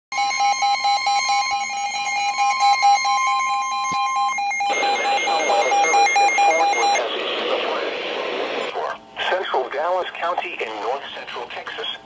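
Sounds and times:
warning alarm tone: 0.1s - 7.0s
rapid pulsing beep: 0.2s - 7.0s
hissing radio broadcast: 4.7s - 12.0s.

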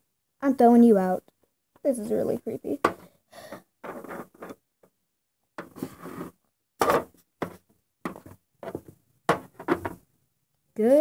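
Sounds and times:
toy figures rustling and scraping: 3.8s - 4.7s, 5.6s - 10.0s.

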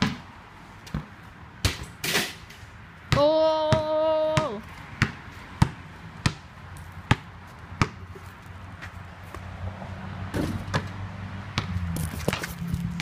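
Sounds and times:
basketball bouncing on concrete: 0.0s - 0.2s, 0.8s - 1.9s, 3.1s - 8.2s, 10.3s - 13.0s.

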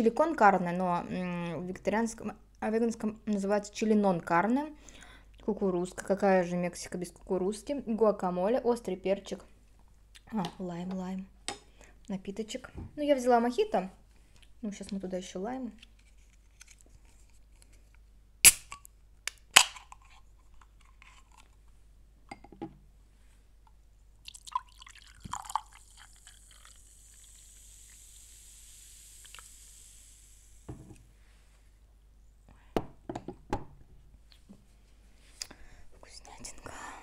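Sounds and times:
liquid pouring into glass: 24.2s - 29.8s.

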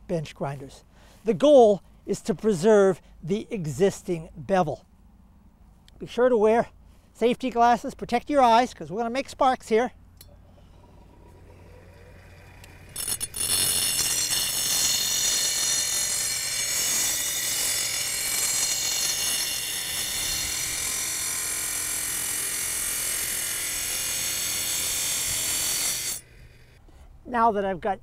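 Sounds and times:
blade scraping: 10.6s - 21.7s, 22.6s - 26.8s
bench grinder grinding steel: 10.6s - 26.8s.

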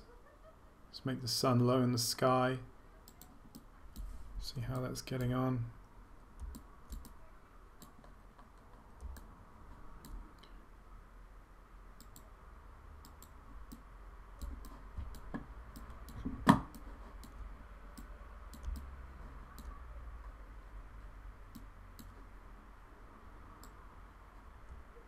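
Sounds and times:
computer mouse clicks: 3.0s - 5.4s, 6.4s - 7.2s, 7.8s - 9.3s, 10.0s - 10.6s, 12.0s - 12.3s, 13.0s - 19.8s, 21.5s - 22.3s.

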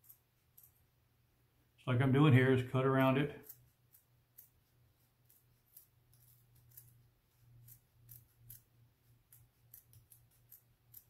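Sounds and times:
scissors snipping: 3.0s - 4.6s, 5.2s - 7.0s, 7.6s - 11.0s.

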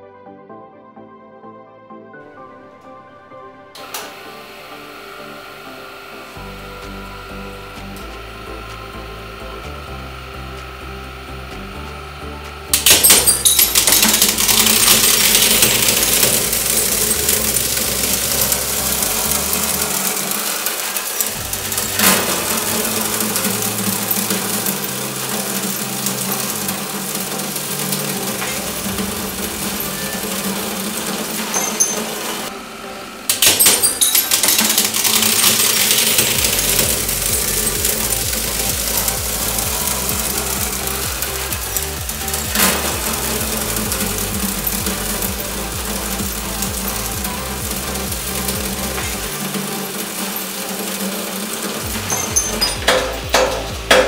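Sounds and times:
hydraulic press humming: 2.3s - 54.0s
shards clinking: 12.8s - 32.5s, 33.3s - 54.0s
ceramic plates cracking and shattering: 48.1s - 54.0s.

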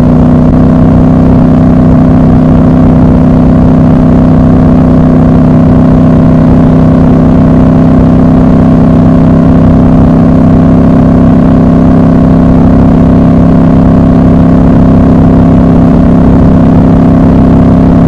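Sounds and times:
motorcycle engine cruising: 0.0s - 18.0s.

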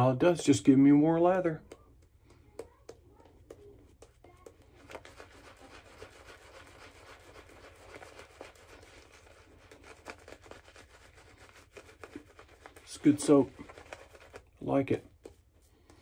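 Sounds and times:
shaving brush rubbing lather: 4.0s - 16.0s.

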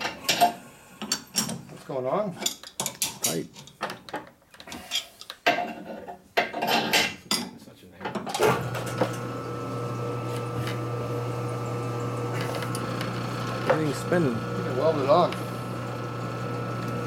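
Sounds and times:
lathe motor humming: 8.4s - 17.0s.

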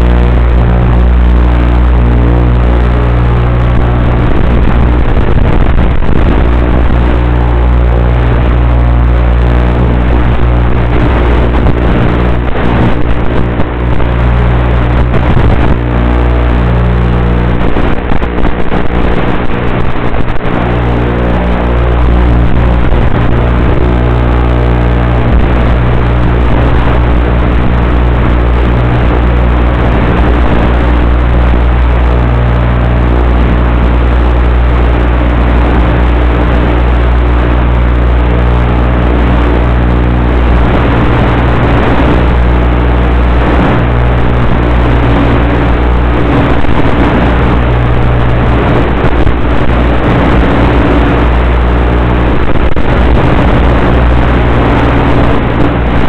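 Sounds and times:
model plane motor and propeller: 0.0s - 56.0s
wind rush: 0.0s - 56.0s.

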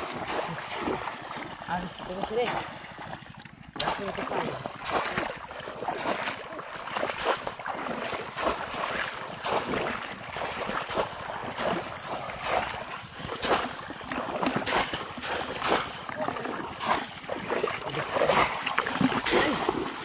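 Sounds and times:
shallow water splashing: 0.0s - 20.0s.

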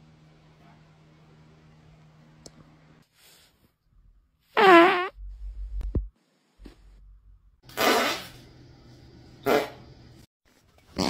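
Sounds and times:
loud fart: 4.6s - 5.2s, 7.7s - 8.4s, 9.4s - 9.8s.

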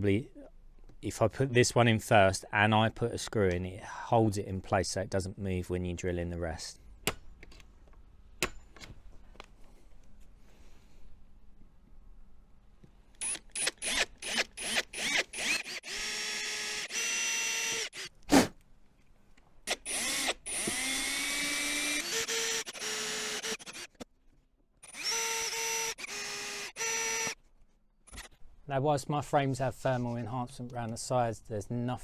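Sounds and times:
cordless drill spinning: 13.2s - 18.2s, 19.7s - 24.1s, 24.8s - 27.4s.

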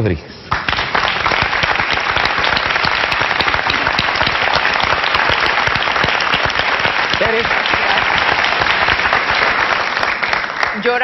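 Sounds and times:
audience applauding: 0.5s - 11.0s.

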